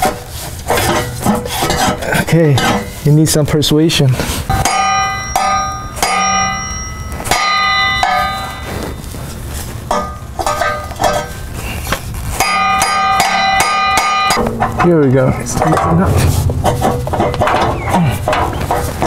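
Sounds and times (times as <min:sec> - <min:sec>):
hammer striking metal pipe: 0:04.5 - 0:08.7, 0:09.9 - 0:11.4, 0:12.4 - 0:19.0.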